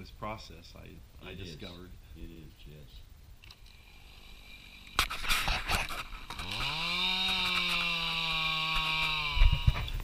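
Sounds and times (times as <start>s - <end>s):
chainsaw starting clatter: 5.4s - 10.0s
chainsaw engine revving: 5.7s - 9.9s.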